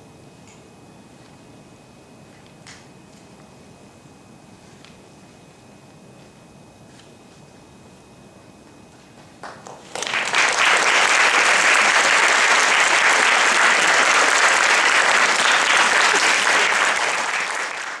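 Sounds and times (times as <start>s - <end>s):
audience applauding: 9.4s - 18.0s.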